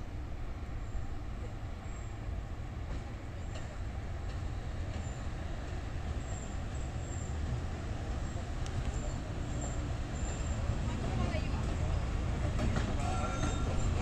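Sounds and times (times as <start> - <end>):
electric locomotive rumbling: 0.0 - 14.0
faint clicks: 8.6 - 9.0.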